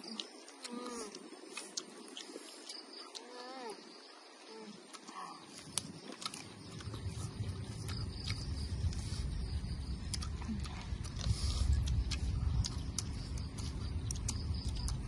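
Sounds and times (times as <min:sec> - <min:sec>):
people chewing: 0:00.0 - 0:03.8, 0:04.5 - 0:15.0
low rumble: 0:05.5 - 0:15.0.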